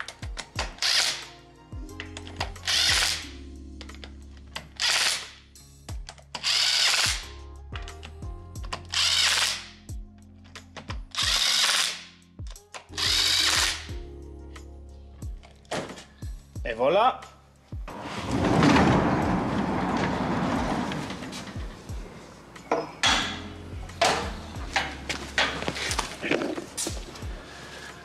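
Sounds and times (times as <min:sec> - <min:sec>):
background music with beat: 0:00.0 - 0:04.6, 0:05.5 - 0:06.3, 0:07.1 - 0:09.0, 0:09.8 - 0:11.5, 0:12.2 - 0:17.9, 0:21.3 - 0:28.0
power tool driving bolts: 0:00.5 - 0:01.3, 0:02.2 - 0:03.2, 0:04.6 - 0:05.3, 0:06.4 - 0:07.2, 0:08.7 - 0:09.7, 0:10.8 - 0:12.0, 0:13.0 - 0:13.9.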